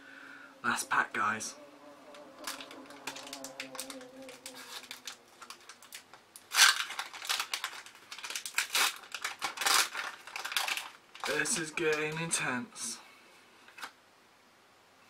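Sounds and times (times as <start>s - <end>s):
foil wrapper crinkling and tearing: 2.4s - 12.2s.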